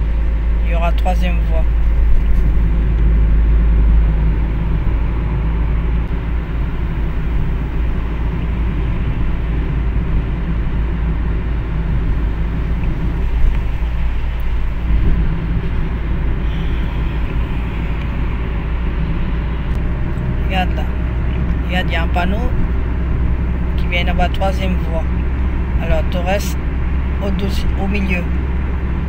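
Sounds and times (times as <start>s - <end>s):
engine and road rumble: 0.0s - 29.0s
tyre hiss on wet road: 16.3s - 18.9s.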